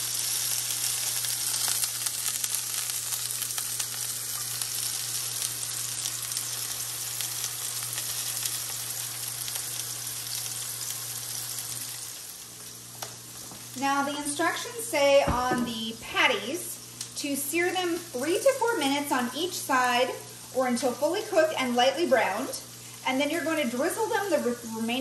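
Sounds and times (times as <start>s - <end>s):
meat sizzling in a skillet: 0.0s - 14.8s.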